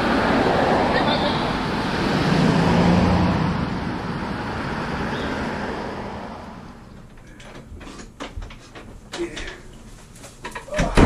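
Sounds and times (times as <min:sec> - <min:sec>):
vehicle passing: 0:00.0 - 0:07.0.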